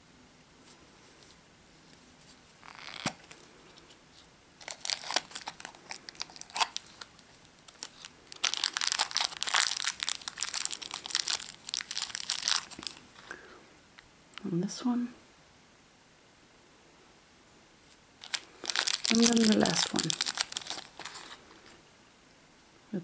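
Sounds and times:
plastic wrapper crinkling: 2.3s - 13.3s, 18.2s - 21.8s.

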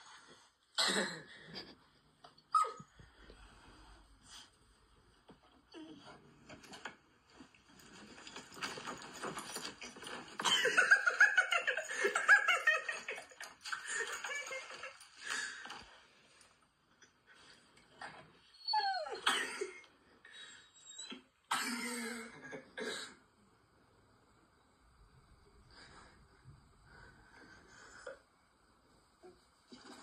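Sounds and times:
laughter-like voices from phone speaker: 10.4s - 15.8s.

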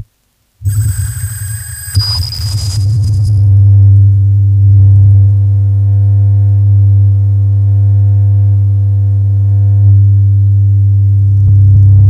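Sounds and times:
electronic drone music: 0.6s - 3.6s.

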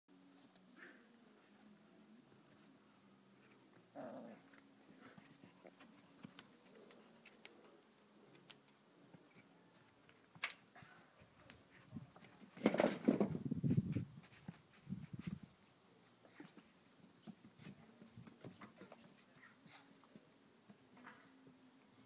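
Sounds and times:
low puppy vocalisation: 3.9s - 5.7s.

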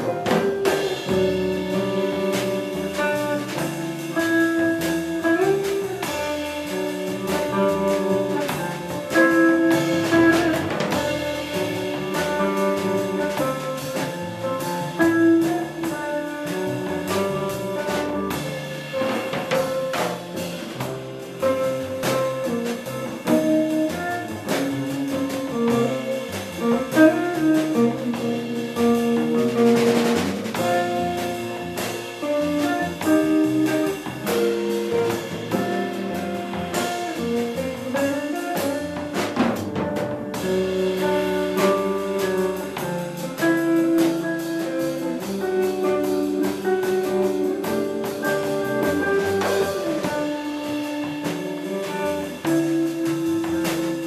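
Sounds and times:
electric guitar playing jazz: 0.0s - 54.0s.

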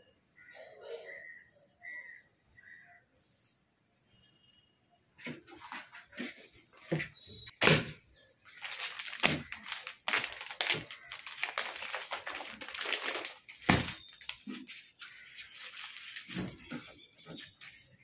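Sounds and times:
plastic packet crinkling: 8.5s - 17.9s.

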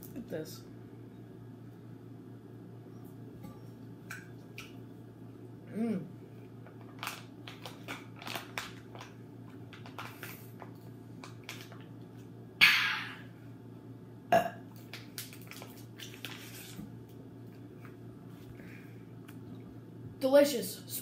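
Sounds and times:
boy burping: 14.3s - 14.6s.

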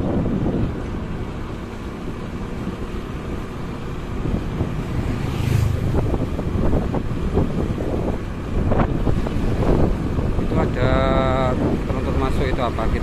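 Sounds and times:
low vehicle rumble: 0.0s - 13.0s
wind rushing over microphone: 0.0s - 13.0s
whoosh: 4.5s - 6.8s.

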